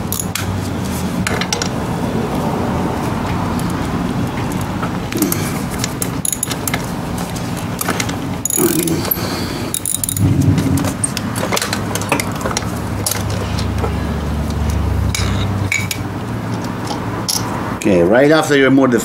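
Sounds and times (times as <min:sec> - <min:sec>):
low steady hum: 0:05.0 - 0:16.2
metal tools clinking: 0:05.1 - 0:06.9, 0:07.8 - 0:10.3
socket wrench clicking: 0:05.8 - 0:06.8, 0:08.5 - 0:10.2.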